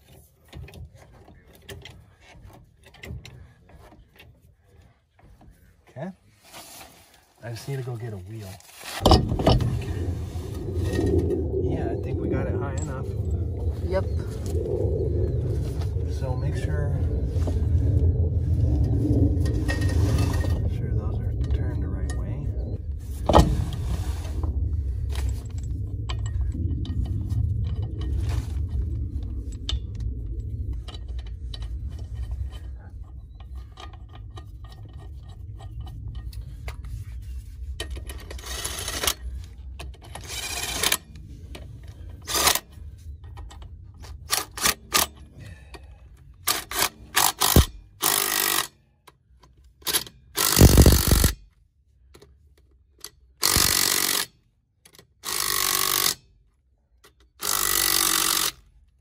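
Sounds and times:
low rumble: 7.5s - 46.5s
power tool bursts tightening bolts: 46.5s - 48.8s, 49.9s - 51.4s, 53.4s - 54.3s, 55.2s - 56.2s, 57.4s - 58.6s.

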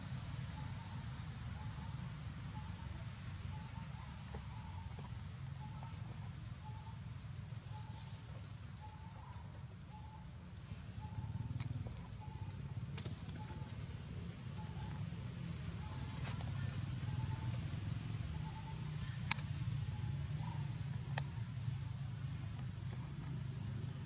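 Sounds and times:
sharp clicks: 19.3s - 19.5s.

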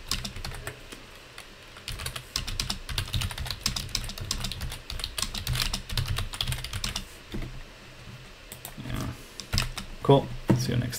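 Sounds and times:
typing on computer keyboard: 0.0s - 0.8s, 1.9s - 7.0s.

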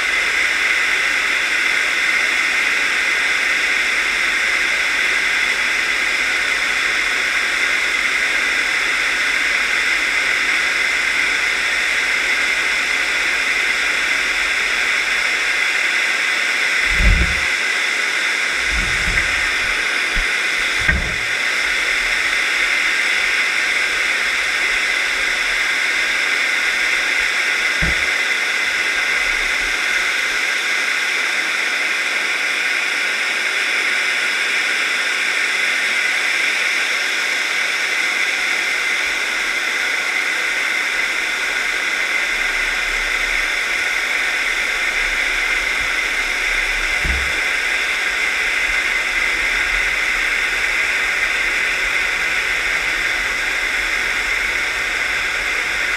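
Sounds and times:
water flowing hiss: 0.0s - 55.9s
low knocks: 16.9s - 17.5s, 18.6s - 22.1s, 27.7s - 28.2s, 46.9s - 47.8s.

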